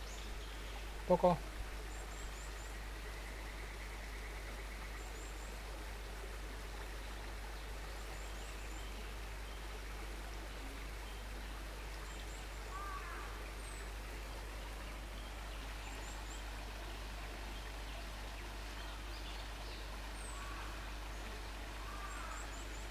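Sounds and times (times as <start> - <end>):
outdoor background hiss: 0.0 - 22.9.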